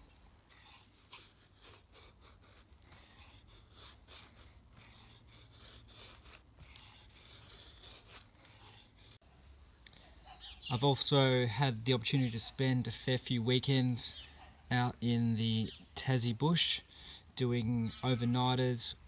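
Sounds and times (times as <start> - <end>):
knife carving wood: 0.5 - 9.2.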